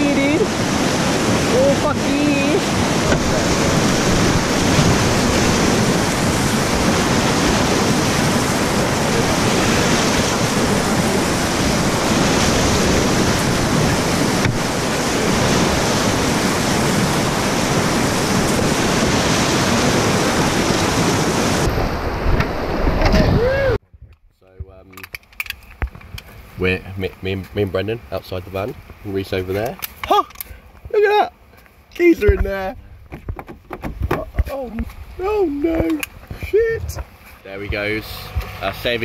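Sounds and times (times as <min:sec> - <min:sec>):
water washing over kayak bow: 0:00.0 - 0:23.8, 0:32.0 - 0:39.0
whitewater rapids rushing: 0:00.0 - 0:23.8.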